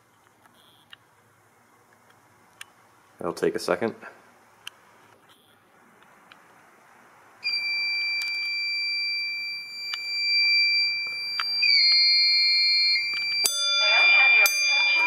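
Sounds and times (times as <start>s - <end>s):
high-pitched electronic alarm tone: 7.4s - 15.0s.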